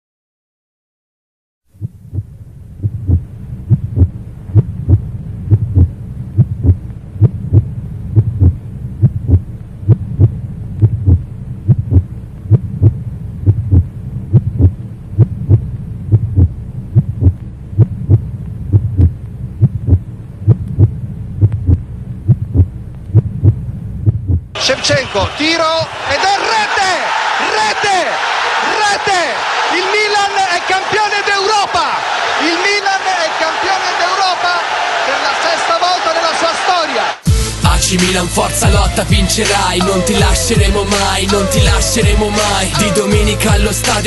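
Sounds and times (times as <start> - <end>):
low hum: 1.7 - 24.6
heartbeat thumps: 1.7 - 25.1, 25.8 - 26.0, 38.6 - 39.4, 41.5 - 42.3.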